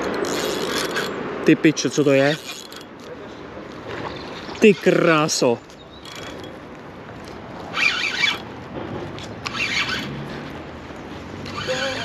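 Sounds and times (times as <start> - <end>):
fishing reel buzzing: 0.0 - 1.1, 1.9 - 2.9, 6.0 - 6.5, 7.7 - 8.4, 9.4 - 10.1.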